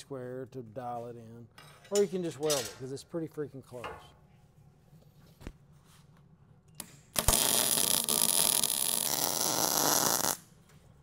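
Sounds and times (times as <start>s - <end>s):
arc welding crackle: 7.1s - 10.5s.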